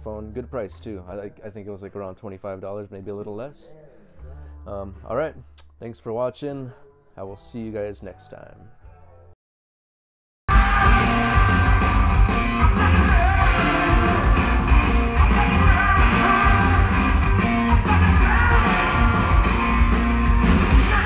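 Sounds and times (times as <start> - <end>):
live rock band playing: 10.5 - 21.0
person singing: 10.5 - 21.0.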